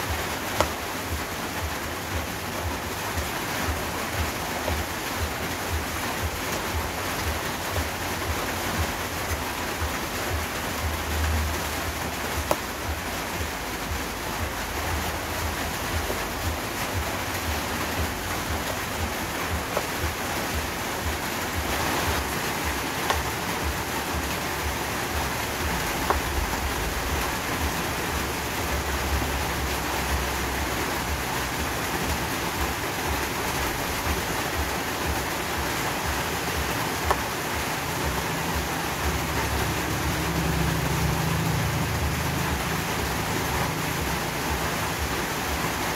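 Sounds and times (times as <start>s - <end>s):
steady rushing hiss: 0.0s - 45.9s
blade tapping cutting board: 0.6s - 0.8s, 12.4s - 12.6s, 22.9s - 23.3s, 25.9s - 26.4s.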